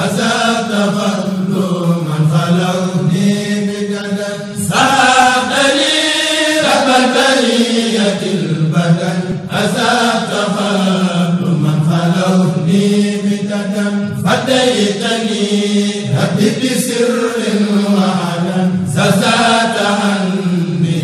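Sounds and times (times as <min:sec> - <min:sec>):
men chanting devotional poem: 0:00.0 - 0:21.0.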